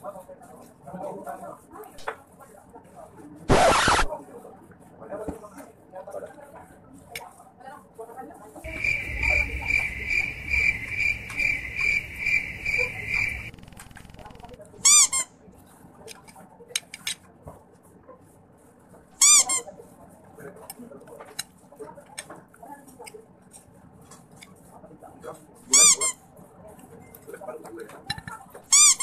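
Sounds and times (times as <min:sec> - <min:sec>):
short high squeaks: 0:03.5 - 0:04.1
high insect-like chirping: 0:08.7 - 0:14.5.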